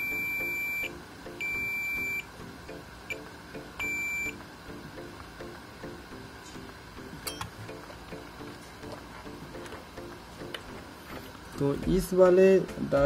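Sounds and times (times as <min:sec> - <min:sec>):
multimeter beeps: 0:00.0 - 0:02.3, 0:03.8 - 0:04.4.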